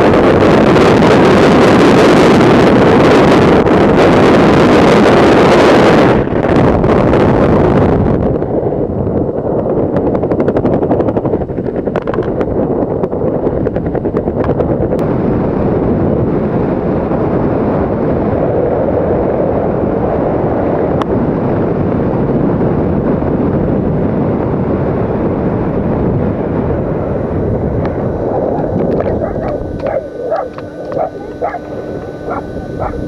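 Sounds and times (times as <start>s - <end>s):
wind rushing over microphone: 0.0s - 33.0s.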